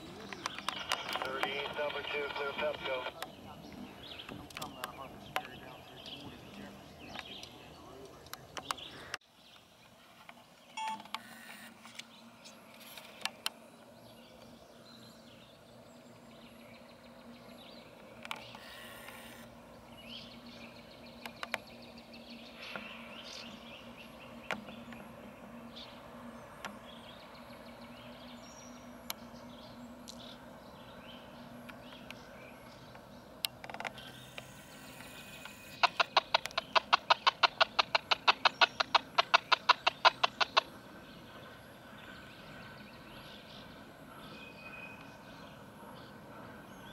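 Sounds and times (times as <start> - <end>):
distant locomotive hum: 0.0 - 10.5, 11.1 - 46.9
scattered clicks: 0.2 - 3.4, 4.2 - 9.2, 32.9 - 40.7.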